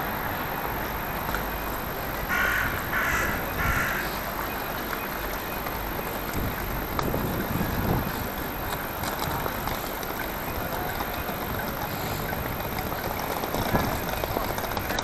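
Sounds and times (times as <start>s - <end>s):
street background hum: 0.0s - 15.0s
crow cawing: 2.3s - 4.2s.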